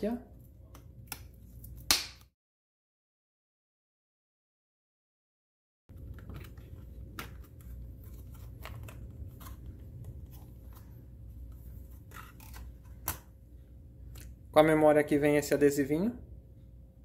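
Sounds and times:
low steady hum: 0.0s - 1.9s, 5.9s - 17.0s.

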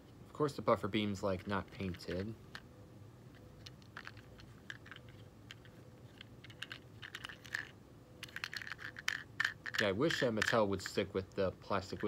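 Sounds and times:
fingers handling plastic toy: 3.3s - 11.0s.

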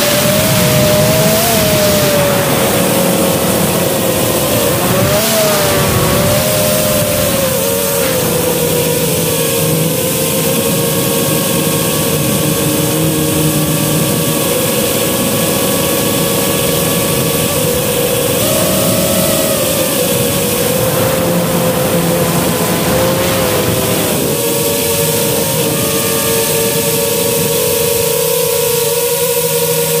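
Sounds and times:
quadcopter motors whining: 0.0s - 30.0s.

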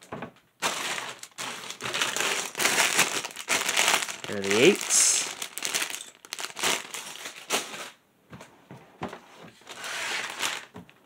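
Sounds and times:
plastic bags crinkling: 0.6s - 8.0s, 9.6s - 10.8s.

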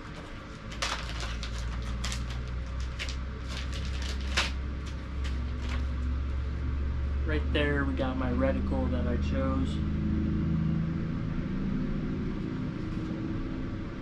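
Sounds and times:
paper pages rustling: 0.0s - 6.1s
low steady hum: 0.0s - 14.0s.

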